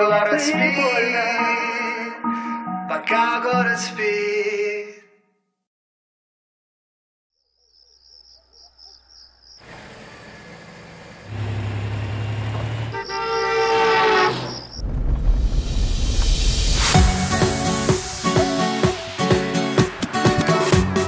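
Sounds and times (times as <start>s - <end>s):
insects chirping: 7.3s - 10.4s, 13.0s - 15.0s
truck road noise: 9.6s - 21.0s
truck horn blast: 11.2s - 14.6s.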